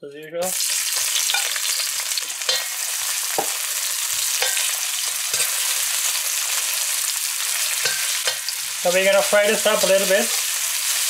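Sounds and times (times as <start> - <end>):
onions sizzling in oil: 0.5 - 11.0
metal spatula scraping pan: 2.4 - 6.7, 7.4 - 11.0.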